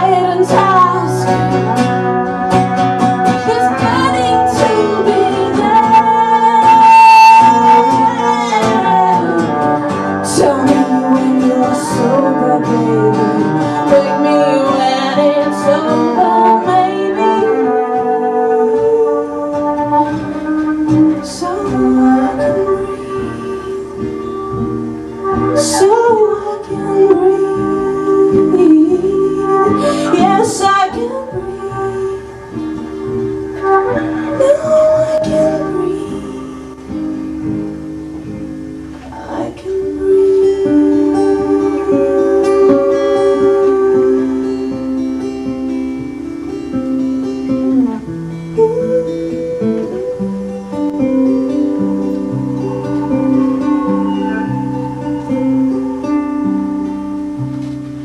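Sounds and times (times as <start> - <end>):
person singing: 0.0 - 37.8, 39.0 - 58.0
acoustic rock band playing: 0.0 - 58.0
long sliding held notes: 0.0 - 58.0.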